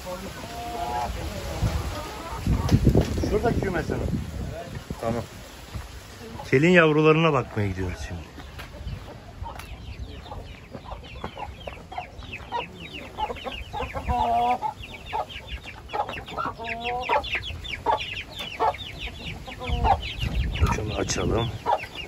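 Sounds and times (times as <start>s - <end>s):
chicks peeping: 0.0s - 22.0s
adult chicken calling: 0.3s - 2.8s, 8.7s - 22.0s.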